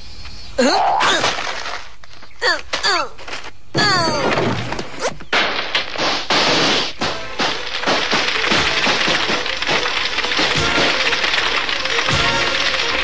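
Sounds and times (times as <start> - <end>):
fire flaring up: 6.0 - 13.0
music: 7.0 - 13.0.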